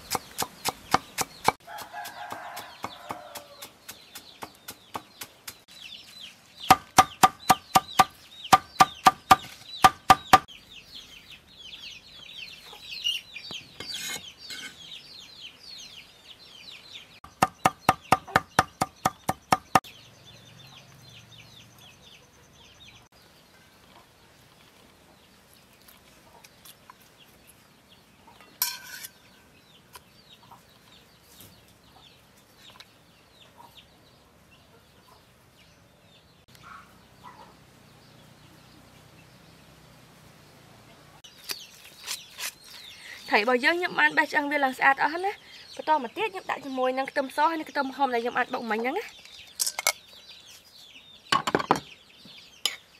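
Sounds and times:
chickens clucking and chirping: 0:00.0 - 0:52.9
cleaver chopping on wooden board: 0:06.7 - 0:10.5, 0:17.2 - 0:19.9.

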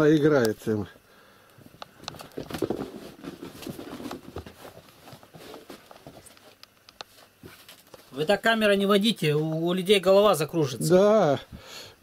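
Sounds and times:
kittens play-fighting on bed: 0:01.7 - 0:08.1.

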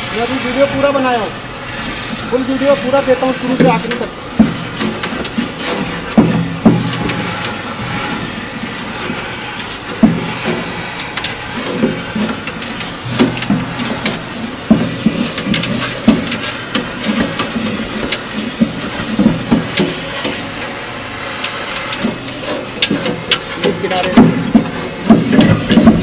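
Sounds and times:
vacuum hose suction slurping: 0:00.0 - 0:26.0
knocks and clatters: 0:09.6 - 0:20.6, 0:21.4 - 0:26.0.

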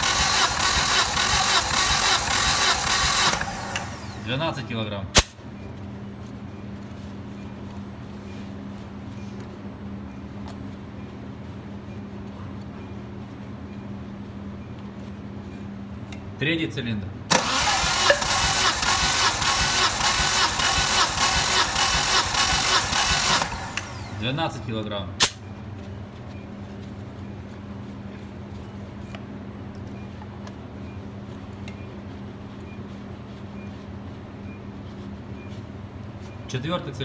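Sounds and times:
starter motor cranking engine: 0:00.0 - 0:04.4, 0:17.3 - 0:24.4
steady low hum: 0:19.0 - 0:37.0.

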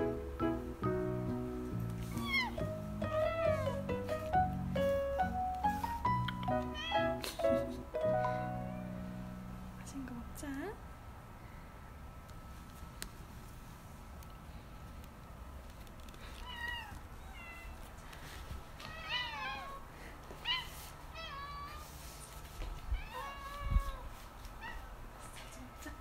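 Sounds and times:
cat meowing: 0:02.1 - 0:03.8, 0:06.3 - 0:07.2, 0:16.4 - 0:17.8, 0:18.8 - 0:19.8, 0:20.4 - 0:21.9, 0:22.9 - 0:25.9.

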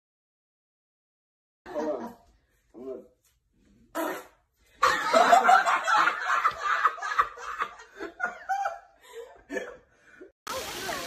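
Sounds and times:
people laughing: 0:04.8 - 0:09.7.

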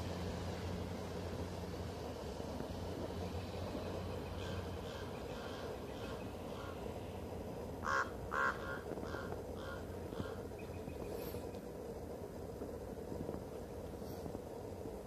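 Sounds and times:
steady low rumble: 0:00.0 - 0:15.0
bird calling: 0:04.2 - 0:06.9, 0:07.8 - 0:11.4.

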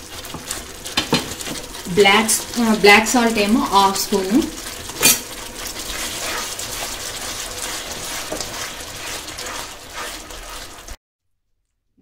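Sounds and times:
spatula stirring thick chutney: 0:04.6 - 0:11.0
faint scrapes: 0:05.7 - 0:11.0.

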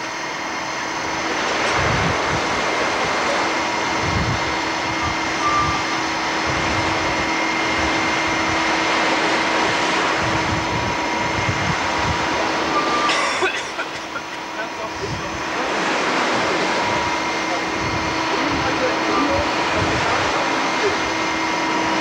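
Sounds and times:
ship engine drone with whine: 0:00.0 - 0:22.0
wind buffeting microphone: 0:00.5 - 0:12.9, 0:14.4 - 0:22.0.

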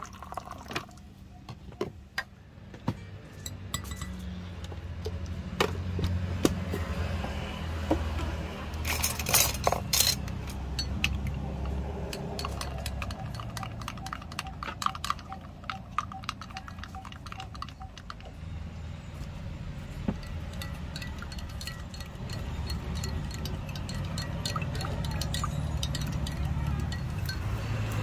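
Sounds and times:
cups and utensils clinking: 0:03.3 - 0:04.4, 0:08.8 - 0:18.4, 0:20.0 - 0:28.0.

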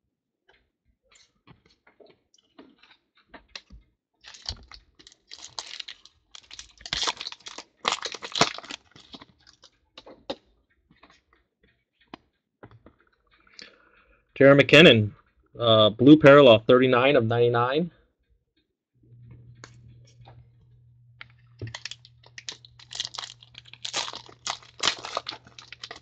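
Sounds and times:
foil wrapper tearing and crinkling: 0:04.2 - 0:09.7, 0:21.6 - 0:26.0.

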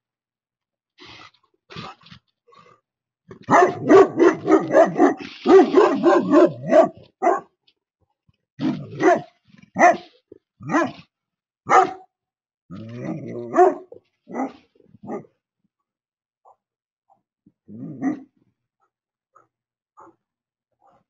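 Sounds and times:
dog barking deeply: 0:03.3 - 0:07.5, 0:08.6 - 0:10.0, 0:10.6 - 0:11.1, 0:11.7 - 0:12.1, 0:13.0 - 0:15.3.

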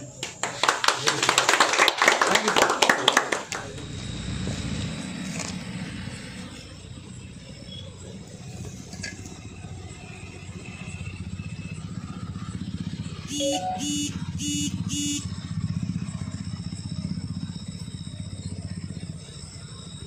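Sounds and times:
engine running with pulsing rumble: 0:03.5 - 0:20.0
short beeps: 0:13.3 - 0:15.2.

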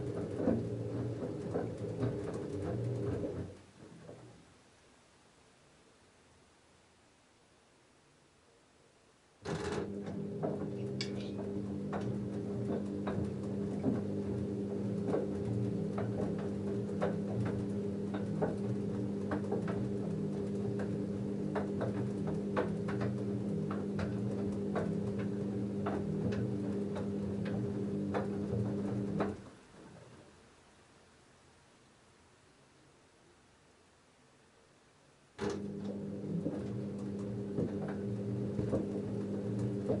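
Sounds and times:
washing machine motor humming: 0:00.0 - 0:04.4, 0:09.5 - 0:30.0, 0:35.4 - 0:40.0
clicks and knocks of tumbling laundry: 0:00.0 - 0:04.5, 0:09.4 - 0:30.2, 0:35.4 - 0:40.0.

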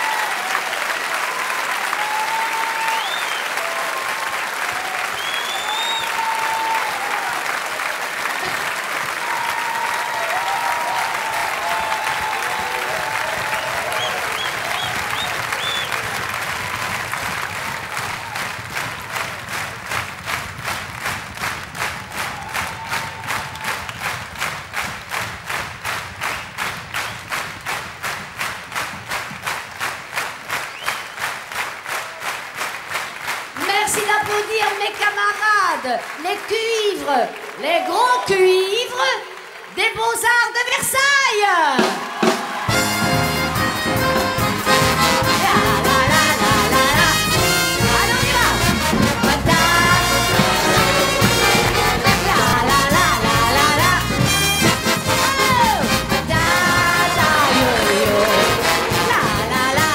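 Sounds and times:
cheers and whistles: 0:00.0 - 0:17.1, 0:21.9 - 0:24.2, 0:30.6 - 0:31.4, 0:41.6 - 0:44.2
audience applauding: 0:00.0 - 0:59.9.

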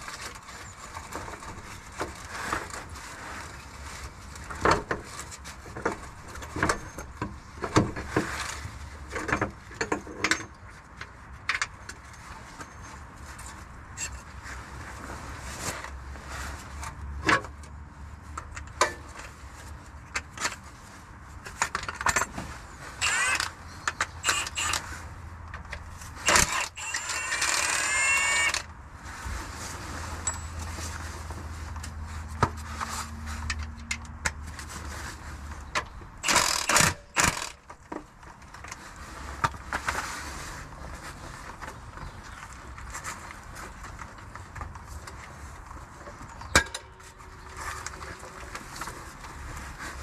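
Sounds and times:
cordless power tool whining: 0:23.0 - 0:23.5, 0:24.2 - 0:24.9, 0:26.3 - 0:28.7, 0:36.2 - 0:37.6
hand tools clinking and clattering: 0:30.2 - 0:31.0.

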